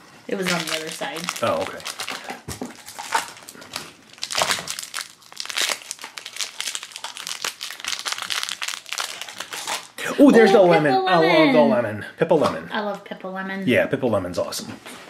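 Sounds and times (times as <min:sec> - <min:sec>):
plastic wrapper crinkling: 0:00.3 - 0:10.0.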